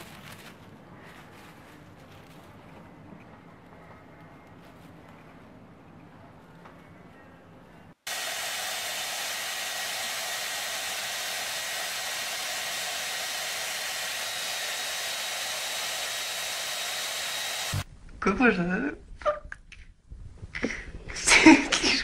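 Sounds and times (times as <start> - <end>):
hair dryer running: 8.1 - 17.9.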